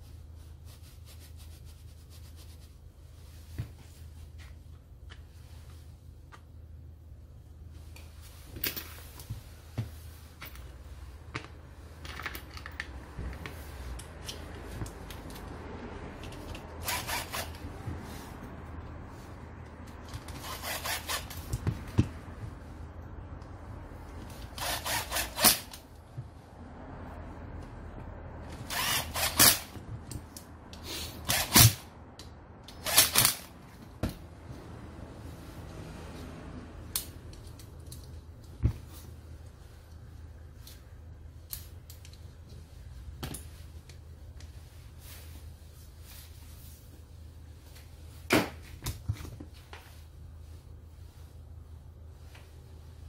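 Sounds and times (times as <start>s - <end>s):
metal parts clicking and knocking: 11.3s - 15.4s, 32.6s - 33.5s
cordless drill bursts: 16.8s - 17.5s, 24.6s - 25.7s, 28.7s - 29.7s, 31.2s - 31.8s.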